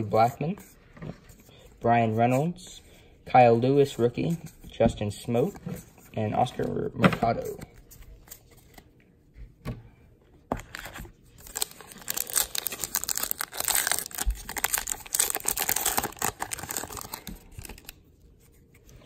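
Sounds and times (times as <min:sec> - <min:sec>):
wrapper tearing and crinkling: 0:11.4 - 0:18.0.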